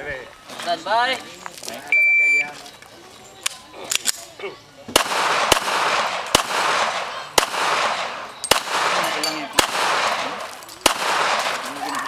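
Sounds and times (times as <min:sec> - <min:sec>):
pistol shots echoing: 0:04.9 - 0:11.8.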